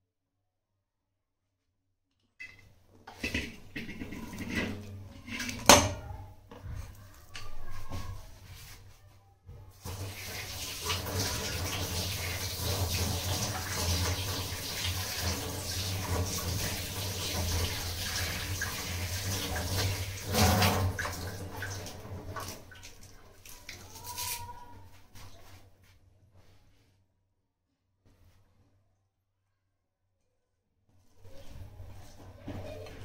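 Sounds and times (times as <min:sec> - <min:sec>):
tap water splashing into sink: 0:09.9 - 0:24.3.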